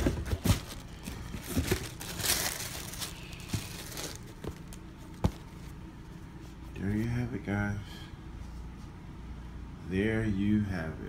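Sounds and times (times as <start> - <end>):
cardboard box handling: 0.0 - 5.7
paper rustling and crinkling: 0.0 - 5.7.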